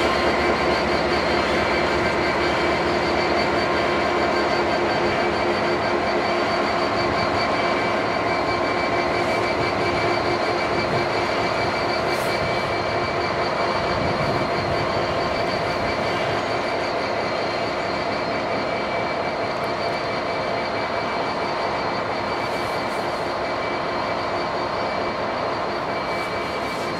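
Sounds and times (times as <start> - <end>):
diesel locomotive engine rumble: 0.0 - 26.9.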